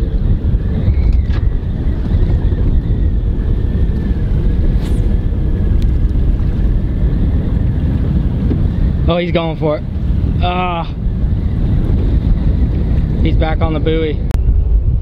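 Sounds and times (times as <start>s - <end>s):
wind buffeting microphone: 0.0s - 15.0s
brief high swish: 4.7s - 5.1s.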